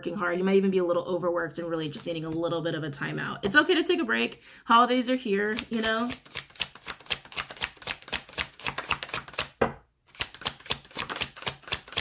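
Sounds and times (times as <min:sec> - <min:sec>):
cards being shuffled: 0:05.5 - 0:12.0.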